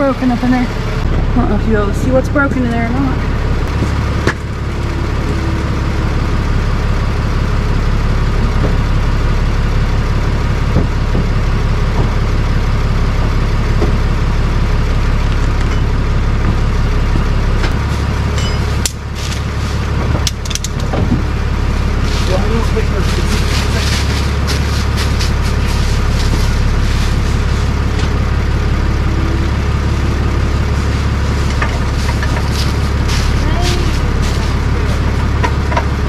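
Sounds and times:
truck engine idling: 0:00.0 - 0:36.0
sharp clicks and knocks: 0:20.0 - 0:21.3, 0:35.4 - 0:35.9.

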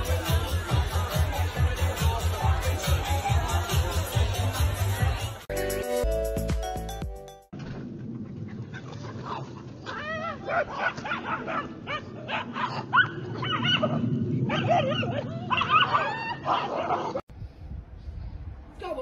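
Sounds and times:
dogs yipping and barking: 0:08.7 - 0:17.2
dogs whimpering yelps: 0:09.9 - 0:17.2.

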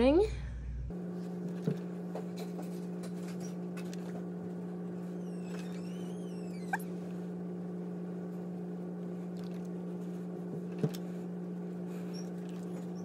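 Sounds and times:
steady low hum: 0:00.0 - 0:13.0
short rising squeak: 0:05.0 - 0:06.9.

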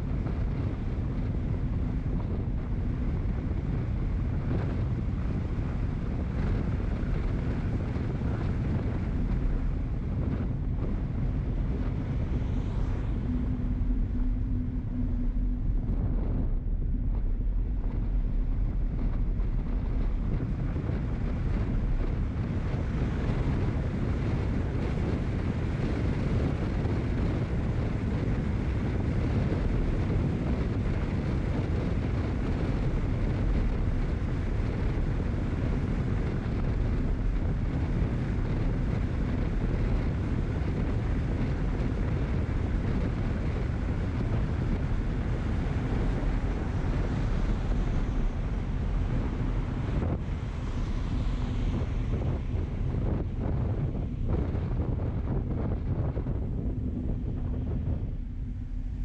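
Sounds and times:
road noise: 0:00.0 - 0:30.2, 0:43.4 - 0:59.0
wind buffeting microphone: 0:00.0 - 0:59.0.

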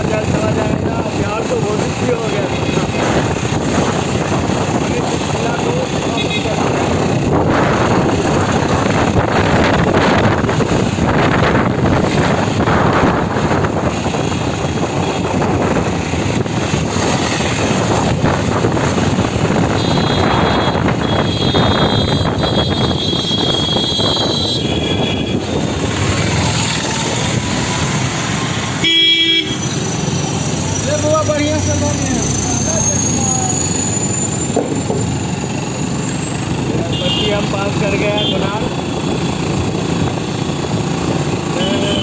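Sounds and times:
road and engine noise: 0:00.0 - 0:42.0
high horn tones: 0:19.7 - 0:25.6.

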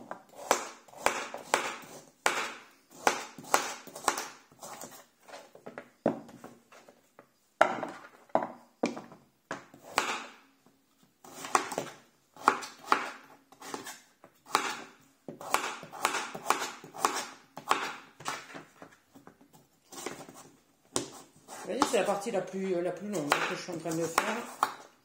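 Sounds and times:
knife chopping on cutting board: 0:00.3 - 0:05.0, 0:08.8 - 0:10.4, 0:11.3 - 0:18.6, 0:23.2 - 0:24.8.

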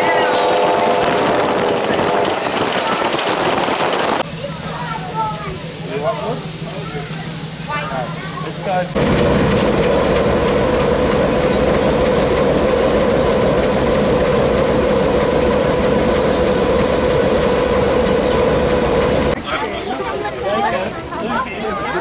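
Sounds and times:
locomotive engine running: 0:00.0 - 0:22.0.

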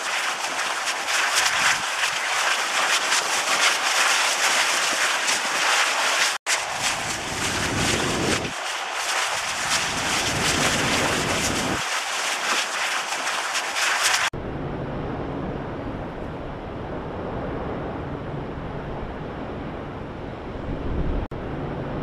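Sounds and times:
crackling hiss of lava and fire: 0:00.0 - 0:14.3.

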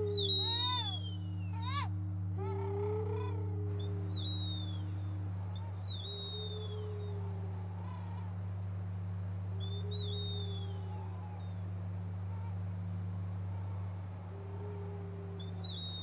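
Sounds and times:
bird whistles: 0:00.0 - 0:01.9, 0:03.8 - 0:04.9, 0:05.6 - 0:07.0, 0:09.6 - 0:10.9, 0:15.4 - 0:16.0
low drone: 0:00.0 - 0:16.0.

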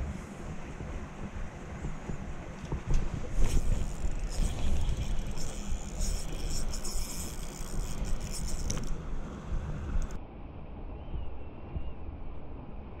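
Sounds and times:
wind buffeting microphone: 0:00.0 - 0:10.2
fishing reel ticking whir: 0:03.4 - 0:09.0.

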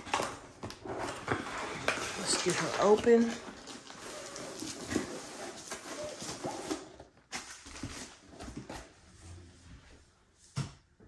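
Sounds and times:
cardboard box rustling and scraping: 0:00.8 - 0:08.9.

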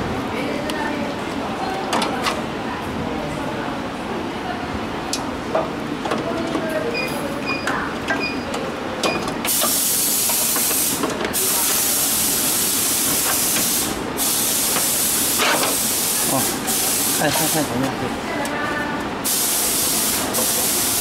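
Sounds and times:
loud steady hiss: 0:09.5 - 0:18.0, 0:19.2 - 0:21.0.

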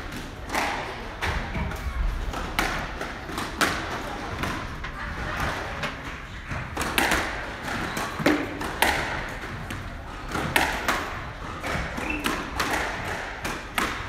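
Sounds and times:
rackets striking squash ball: 0:00.0 - 0:14.0
ball hitting court walls: 0:05.4 - 0:14.0.

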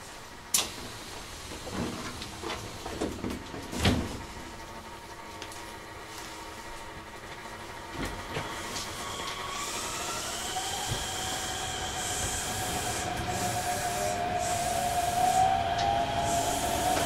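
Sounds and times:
train wheels rumbling on rail: 0:00.0 - 0:17.0
electric motor whine rising: 0:08.7 - 0:17.0.

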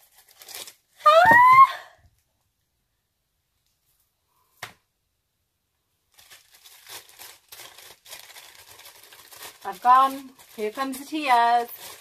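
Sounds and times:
paper packaging crinkling: 0:00.0 - 0:01.0, 0:06.1 - 0:12.0.

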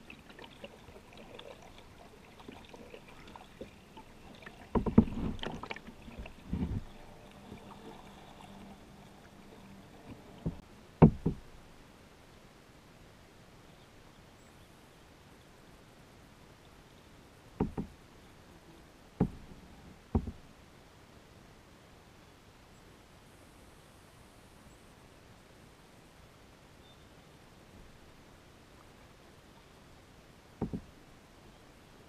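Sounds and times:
paddle strokes in water: 0:00.0 - 0:11.5
paddle knocking kayak hull: 0:02.3 - 0:08.1, 0:10.0 - 0:11.5, 0:17.6 - 0:18.0, 0:19.2 - 0:19.5, 0:20.1 - 0:20.4, 0:30.6 - 0:30.9.

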